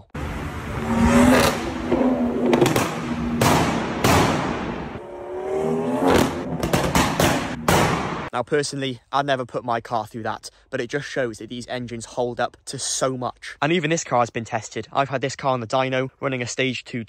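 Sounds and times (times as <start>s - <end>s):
car engine revving: 0.0s - 8.3s
exhaust cracks and bangs: 1.3s - 5.0s, 6.1s - 8.3s.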